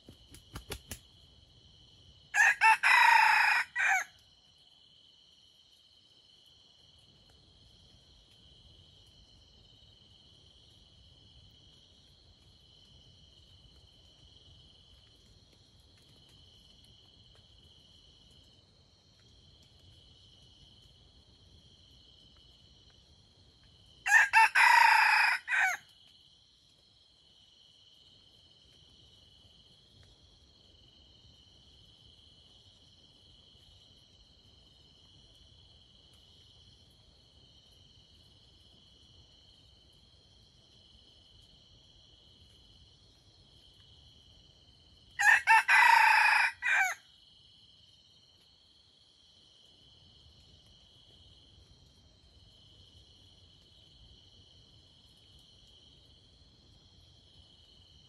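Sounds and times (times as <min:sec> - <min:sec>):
rooster crowing: 0:02.4 - 0:04.1, 0:24.1 - 0:25.8, 0:45.2 - 0:47.0.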